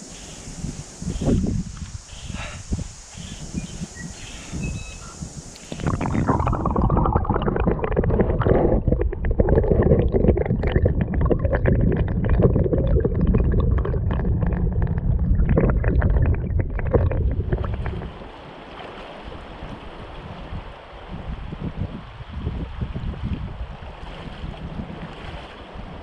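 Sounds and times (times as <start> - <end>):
underwater river rumble: 0.9 - 18.6
underwater crackling and clicking: 5.5 - 18.2.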